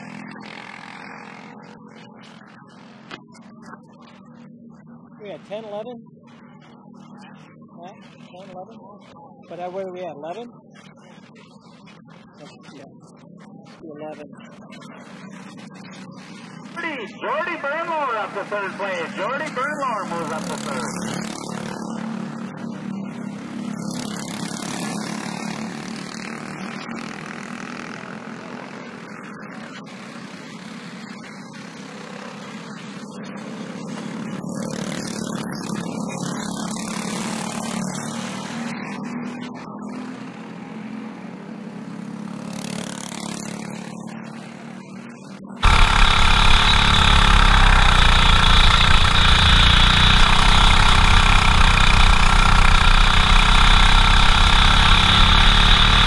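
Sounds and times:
racing kart engines passing: 0:17.2 - 0:27.9, 0:45.6 - 0:56.0
kart engine heard on board: 0:45.6 - 0:56.0.

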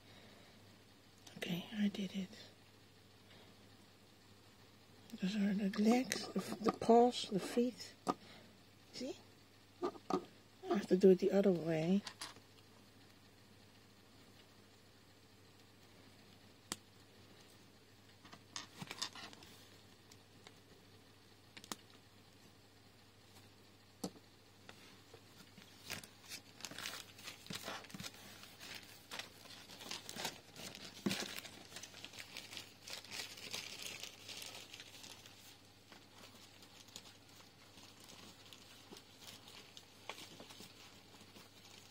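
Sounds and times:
packaging crinkling and rustling: 0:25.2 - 0:41.9.

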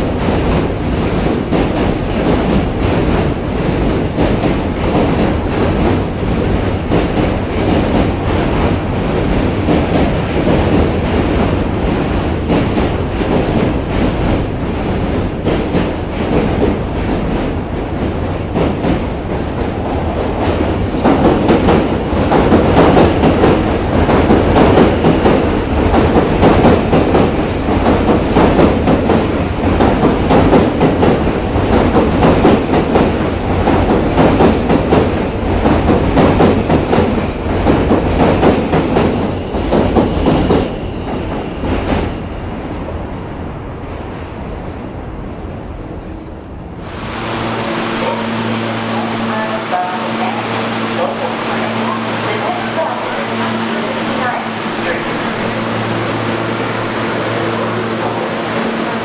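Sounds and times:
train wheels clattering on bridge: 0:00.0 - 0:42.2.

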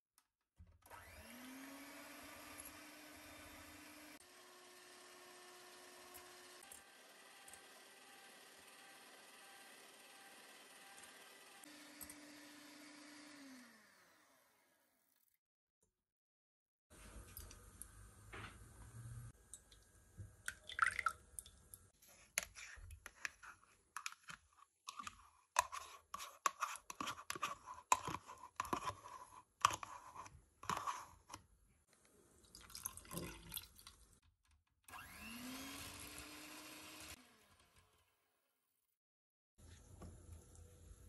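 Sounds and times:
electric hand mixer whirring: 0:00.8 - 0:14.8, 0:34.9 - 0:38.1.

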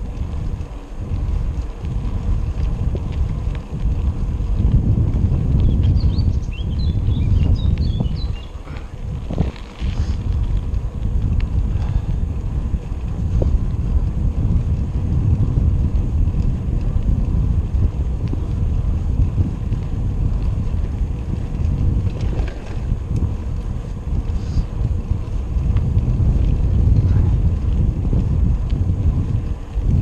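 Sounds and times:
wind buffeting microphone: 0:00.0 - 0:30.0
faint ticks: 0:07.6 - 0:13.9, 0:17.8 - 0:18.6, 0:22.0 - 0:29.8.

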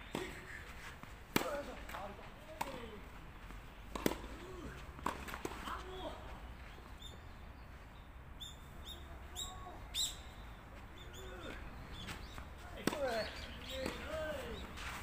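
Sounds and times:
tennis balls struck by racquets: 0:00.0 - 0:00.5, 0:01.3 - 0:06.2, 0:10.9 - 0:15.0
bird chirping: 0:06.6 - 0:12.5.

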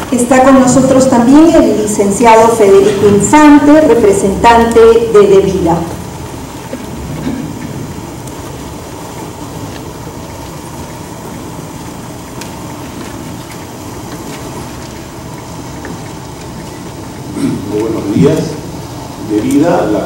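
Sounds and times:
low rumbling room noise: 0:00.0 - 0:20.0.

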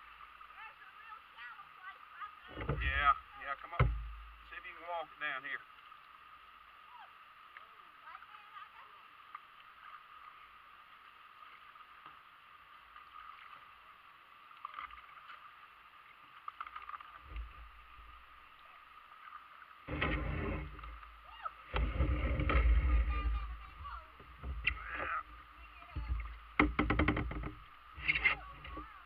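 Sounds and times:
faint rippling water: 0:00.0 - 0:29.0
kayak hull rumbling and knocking: 0:02.4 - 0:04.5, 0:16.6 - 0:18.4, 0:19.8 - 0:29.0.

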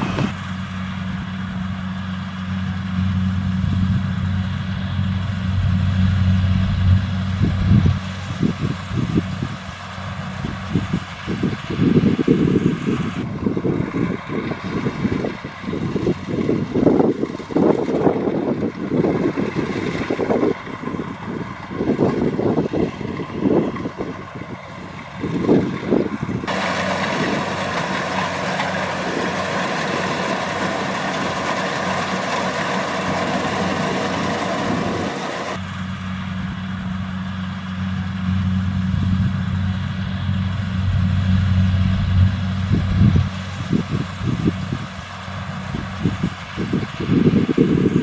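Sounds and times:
combine harvester threshing rush: 0:00.0 - 0:01.0, 0:07.4 - 0:35.7
diesel engine hum: 0:00.0 - 0:48.0
wind buffeting microphone: 0:06.7 - 0:35.6, 0:41.9 - 0:48.0.

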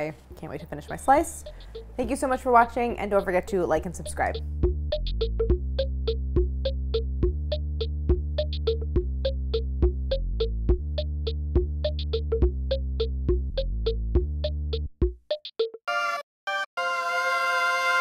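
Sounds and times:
quick plucked notes: 0:00.4 - 0:10.5.

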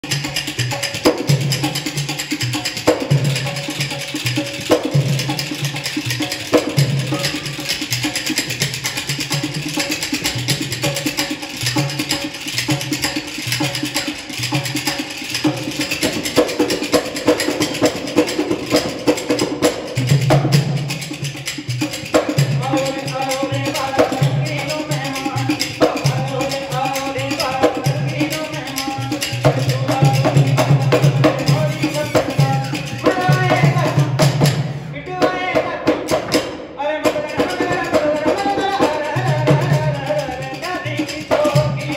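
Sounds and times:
drum beating steady rhythm: 0:00.0 - 0:41.9
sharp clicking percussion: 0:00.0 - 0:41.9.

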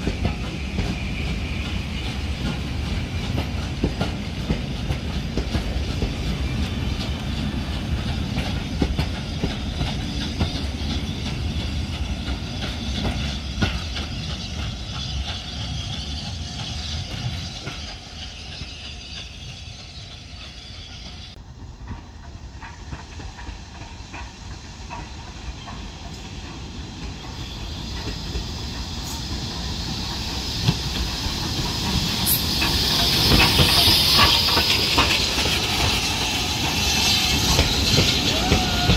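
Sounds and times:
locomotive steam hissing: 0:00.0 - 0:38.9
train rumbling over rails: 0:00.0 - 0:38.9.

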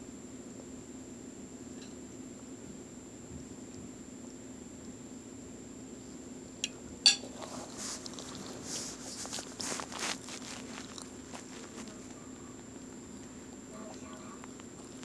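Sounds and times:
faint steady hum: 0:00.0 - 0:15.0
rustling and scraping: 0:07.2 - 0:15.0.

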